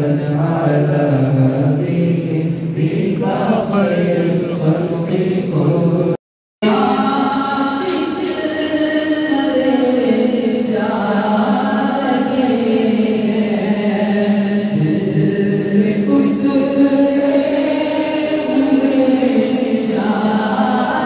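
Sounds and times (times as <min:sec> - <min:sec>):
man chanting recitation: 0:00.0 - 0:06.2.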